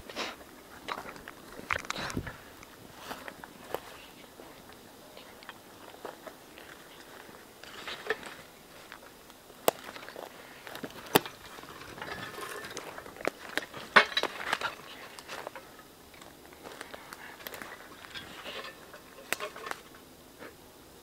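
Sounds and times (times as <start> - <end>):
ferns and brush rustling: 0.0 - 21.0
sticks snapping underfoot: 0.9 - 2.7, 7.7 - 15.6, 16.2 - 19.9.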